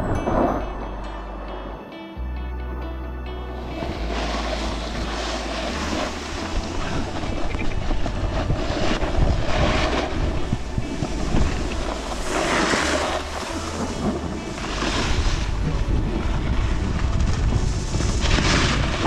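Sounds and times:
wind over microphone: 0:00.0 - 0:00.7, 0:05.7 - 0:19.0
snowboard scraping over snow: 0:03.5 - 0:19.0.

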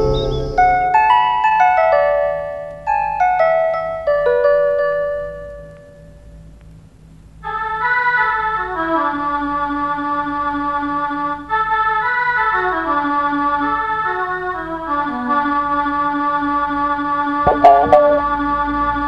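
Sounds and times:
sustained chords with descending notes: 0:17.5 - 0:18.4.

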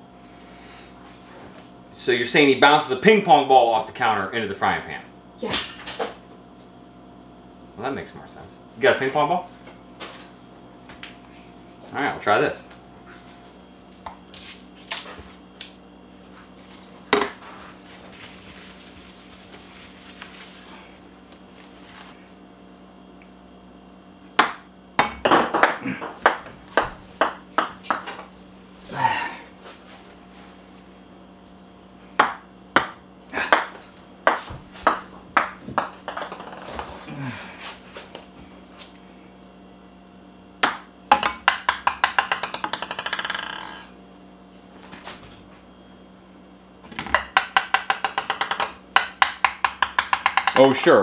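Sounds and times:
hand sweeping across countertop: 0:17.9 - 0:20.9
ping pong ball bouncing: 0:24.4 - 0:28.2, 0:32.2 - 0:36.8, 0:40.6 - 0:43.9, 0:47.1 - 0:50.8
knocks on kitchen countertop: 0:40.7 - 0:43.6, 0:47.0 - 0:50.6.

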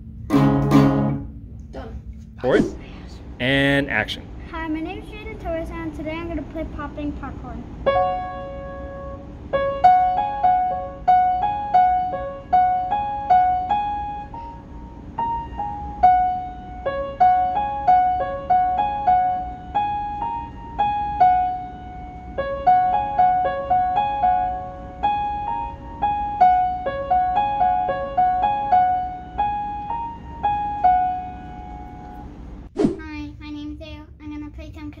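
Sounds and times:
simple piano melody: 0:07.8 - 0:32.7.

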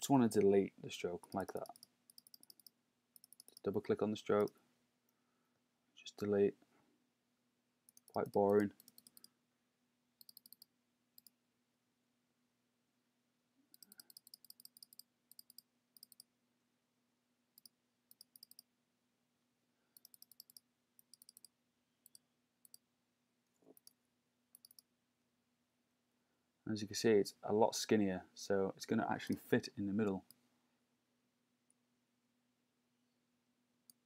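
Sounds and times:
computer mouse clicks: 0:01.2 - 0:03.7, 0:07.9 - 0:09.3, 0:10.2 - 0:11.4, 0:13.7 - 0:16.3, 0:17.6 - 0:18.6, 0:20.0 - 0:22.8, 0:23.6 - 0:24.0, 0:24.6 - 0:24.9.

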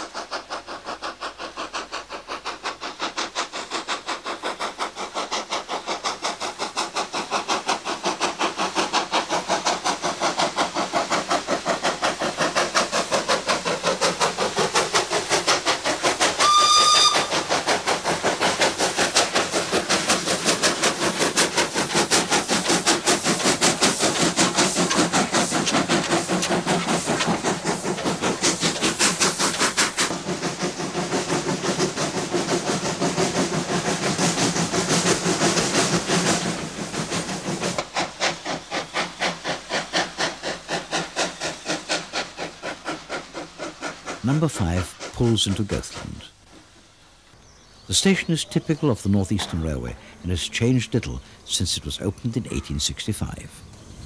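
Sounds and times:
steam locomotive exhaust beats: 0:00.0 - 0:54.0
steam whistle blast: 0:16.4 - 0:17.3.

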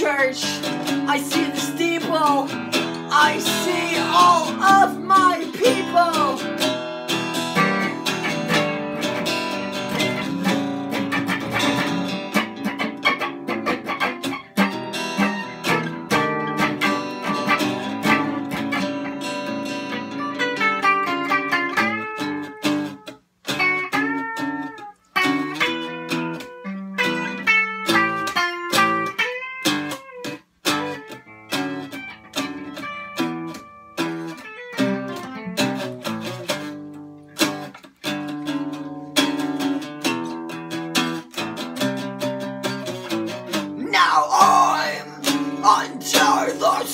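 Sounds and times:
acoustic guitar playing: 0:00.0 - 0:46.9
electric guitar playing: 0:00.0 - 0:46.9.

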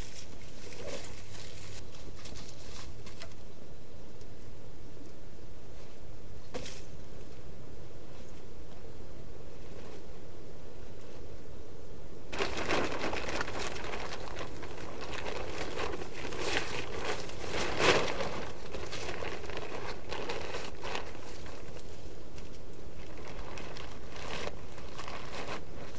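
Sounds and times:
plastic tarp rustling: 0:00.0 - 0:03.5, 0:12.3 - 0:25.9.

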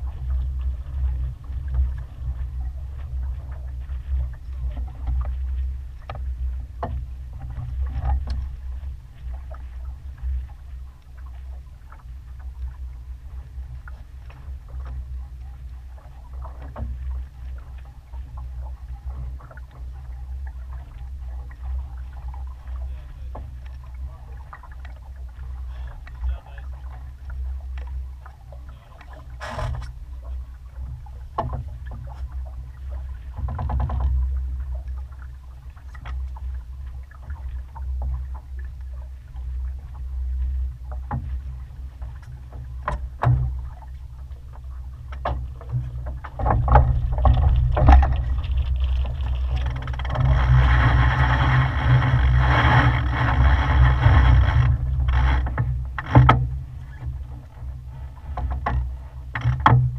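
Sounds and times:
water rushing along hull: 0:00.0 - 0:59.9.

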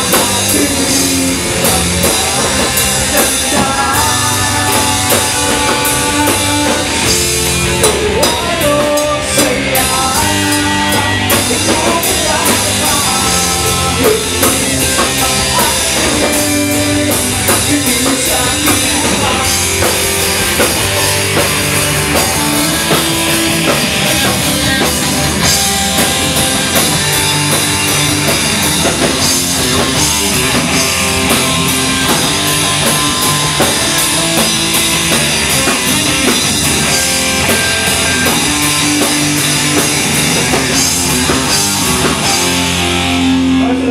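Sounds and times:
person singing into microphone: 0:00.0 - 0:20.0
bass guitar: 0:00.0 - 0:43.9
drum kit: 0:00.0 - 0:43.9
electric guitars: 0:00.0 - 0:43.9.

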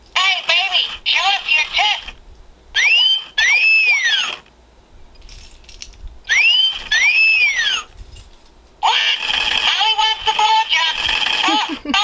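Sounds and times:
toy speaker whistle: 0:02.8 - 0:04.4, 0:06.3 - 0:07.9.

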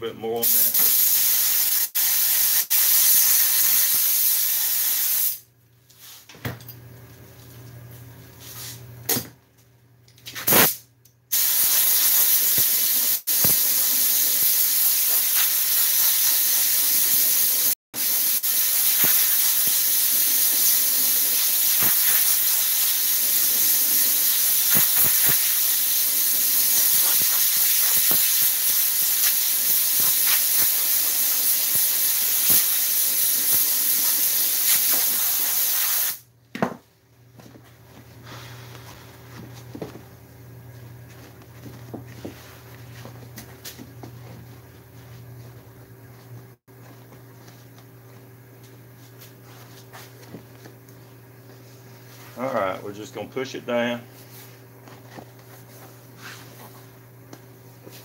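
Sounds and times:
air spray gun hissing: 0:00.4 - 0:05.4, 0:10.5 - 0:36.2
short puffs of air: 0:10.5 - 0:12.7
compressed air blow gun hissing: 0:11.4 - 0:36.2.

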